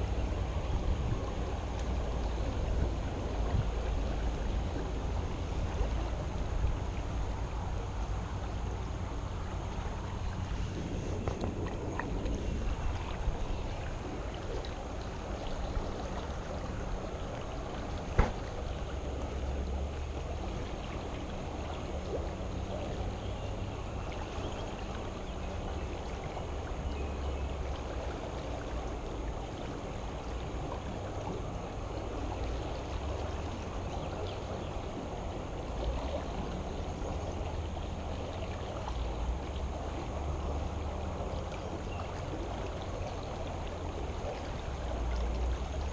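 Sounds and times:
flowing creek rushing: 0:00.0 - 0:45.9.

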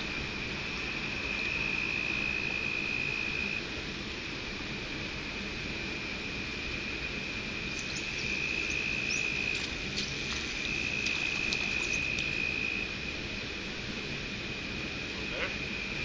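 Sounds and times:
high-pitched insect song: 0:00.0 - 0:03.8, 0:04.9 - 0:16.0
rushing water: 0:07.6 - 0:12.9
bird chirps: 0:07.7 - 0:12.6.

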